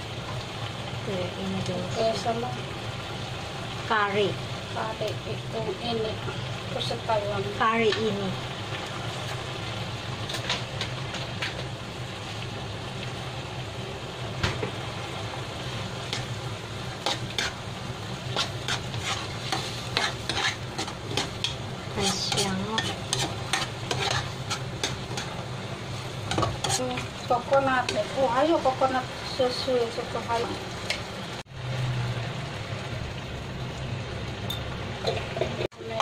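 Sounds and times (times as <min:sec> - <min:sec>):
curry bubbling and sizzling: 0:00.0 - 0:36.0
spatula scraping a pan: 0:17.0 - 0:28.2.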